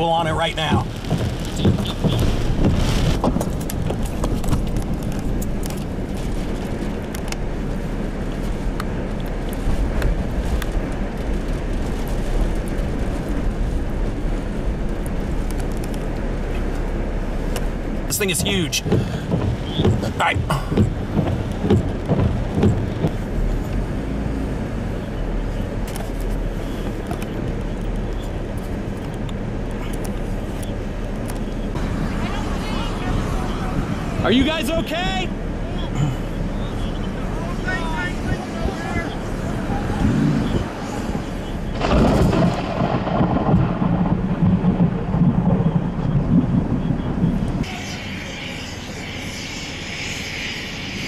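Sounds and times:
vehicle low rumble: 0.0s - 51.0s
sharp ticks and clicks: 18.1s - 23.2s.

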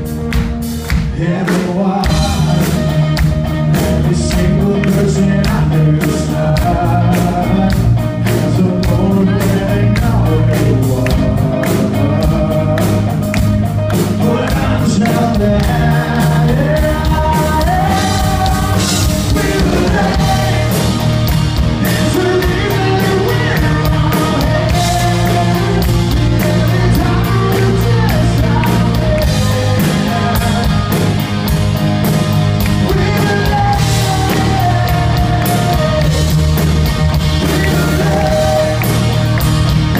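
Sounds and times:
live rock band playing: 0.0s - 39.9s
man singing: 0.9s - 31.3s, 32.6s - 39.5s.

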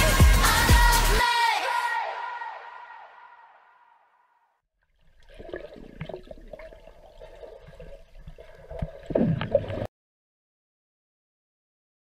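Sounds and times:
music: 0.0s - 3.0s
underwater water sloshing and bubbling: 4.8s - 9.9s.

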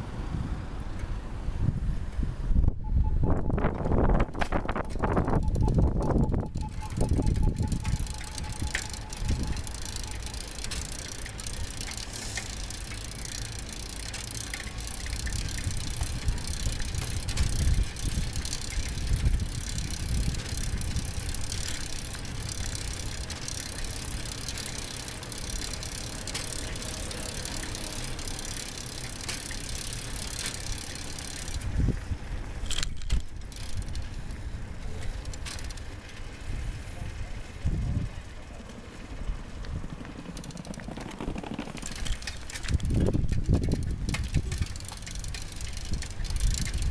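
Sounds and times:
bike rattling over bumps: 3.0s - 46.9s
bicycle tyres rolling hiss: 3.9s - 46.9s.

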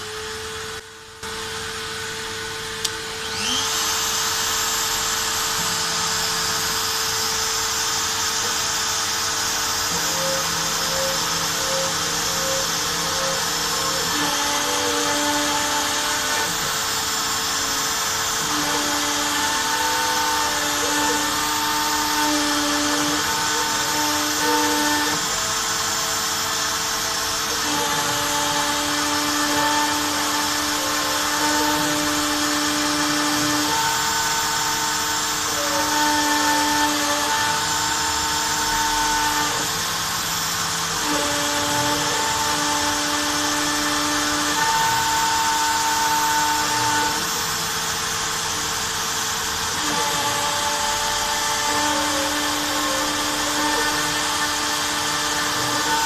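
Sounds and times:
spindle high whine: 0.0s - 21.8s.

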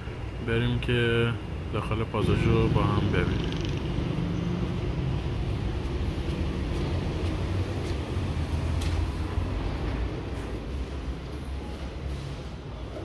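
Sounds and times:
low street rumble: 0.0s - 13.0s.

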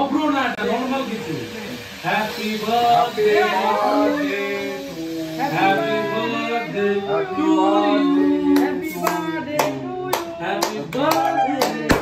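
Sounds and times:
people singing together: 2.0s - 12.0s
hand claps: 8.5s - 12.0s.

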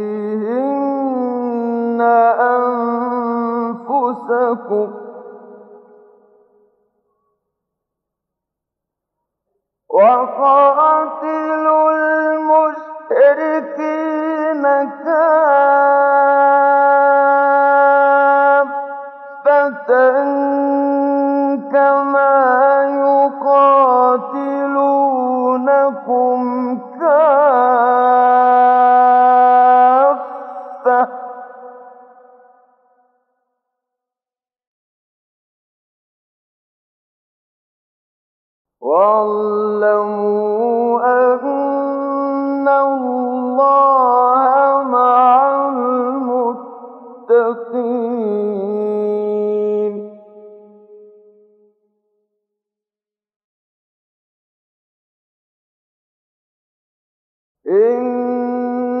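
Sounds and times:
man chanting melodically: 0.0s - 6.0s, 9.9s - 32.3s, 38.8s - 50.9s, 57.7s - 59.0s.

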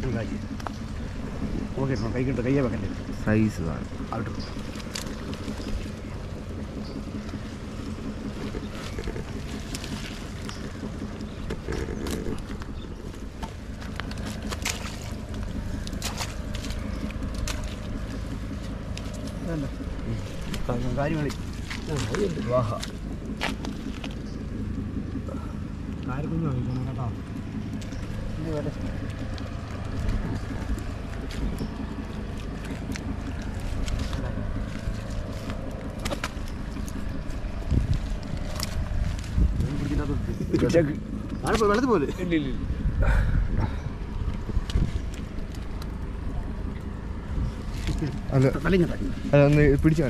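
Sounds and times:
low engine drone: 0.0s - 50.0s
steady low rumble: 0.0s - 50.0s
wet fishing net crackling: 3.9s - 24.8s, 27.2s - 40.2s.

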